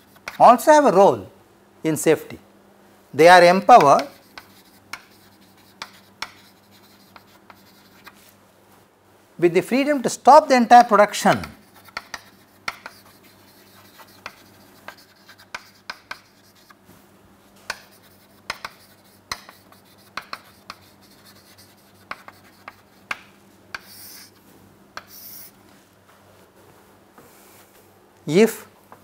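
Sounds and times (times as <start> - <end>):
chalk scraping stroke: 0.0 - 0.5, 3.7 - 8.2, 11.5 - 16.8, 17.7 - 23.2, 23.8 - 24.4, 25.0 - 25.6
chalk tapping and scratching: 0.0 - 0.6, 3.6 - 8.3, 11.3 - 16.8, 17.7 - 24.4, 25.0 - 25.6.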